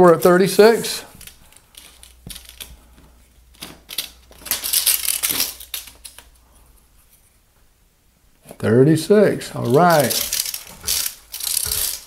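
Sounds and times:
scratching on drywall ceiling: 9.5s - 12.0s
tape measure clicking: 9.6s - 12.0s.

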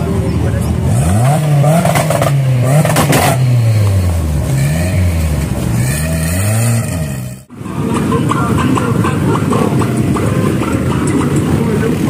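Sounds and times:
off-road vehicle engine revving: 0.0s - 12.0s.

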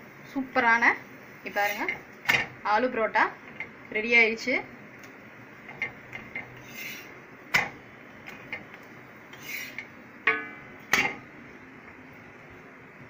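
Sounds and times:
spatula scraping griddle: 1.5s - 2.0s, 5.6s - 7.1s, 9.3s - 9.9s.

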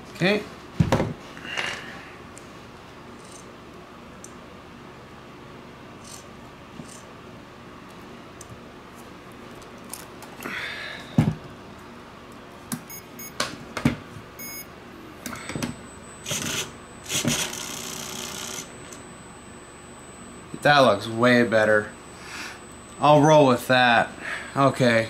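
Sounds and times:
faint high whine: 12.8s - 13.4s, 14.4s - 25.0s
short electronic beeps: 12.9s - 13.4s, 14.4s - 14.7s, 15.6s - 24.1s.

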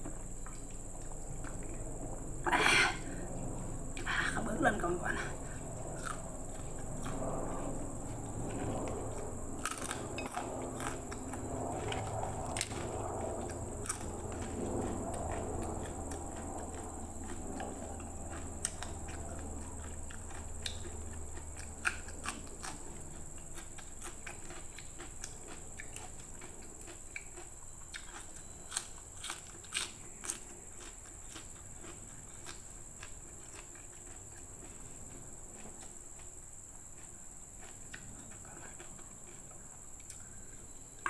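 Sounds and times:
steady high hiss: 0.0s - 11.9s
chewing and crunching: 0.1s - 4.0s, 5.2s - 40.8s.

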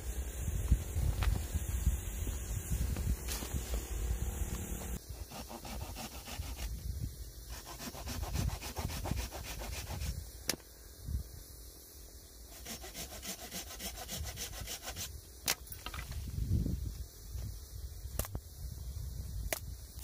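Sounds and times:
wood rasping and scraping: 3.3s - 6.7s, 7.5s - 10.1s, 12.5s - 15.1s.

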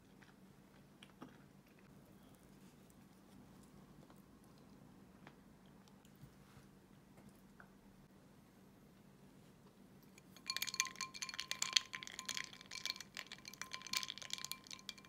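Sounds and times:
ice cubes clinking in glass: 10.2s - 15.0s.

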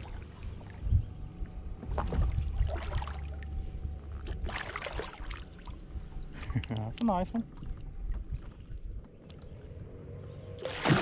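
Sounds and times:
steady low rumble: 0.0s - 10.6s
water splashing: 4.2s - 5.8s, 10.6s - 11.0s.

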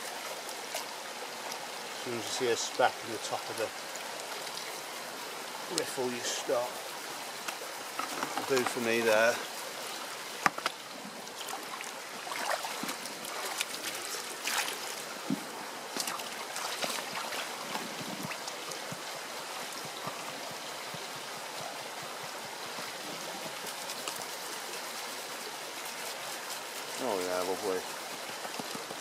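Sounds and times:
shallow stream running: 0.0s - 29.0s
water sloshing in a pan: 11.2s - 15.0s.

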